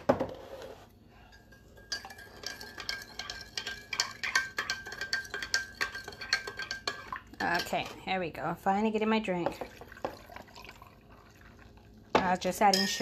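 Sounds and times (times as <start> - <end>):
spoon clinking in a glass: 1.3 - 7.8, 12.7 - 13.0.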